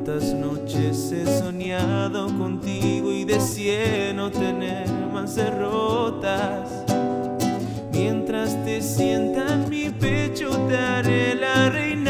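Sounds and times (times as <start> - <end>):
man singing: 0.0 - 12.0
strummed classical guitar: 0.0 - 12.0.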